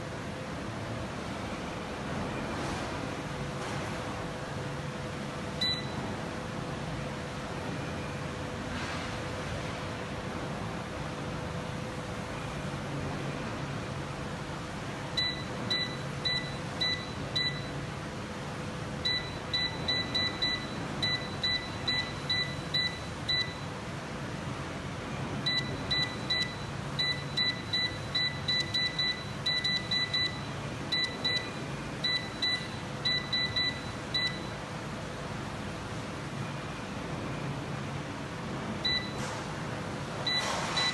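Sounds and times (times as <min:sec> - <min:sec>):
short high beeps: 0:40.3 - 0:40.9.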